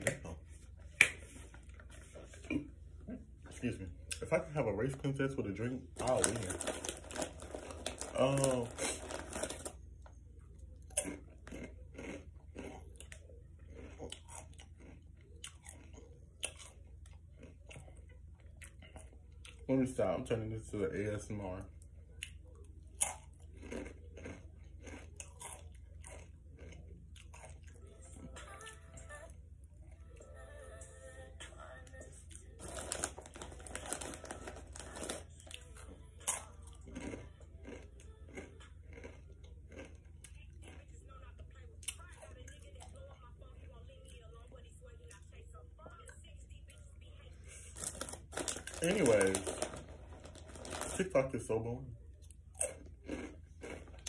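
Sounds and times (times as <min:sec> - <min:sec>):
person chewing crunchy snack: 0:06.0 - 0:10.0, 0:10.7 - 0:19.6, 0:22.1 - 0:28.4, 0:32.2 - 0:40.9, 0:47.7 - 0:51.2, 0:52.2 - 0:54.0.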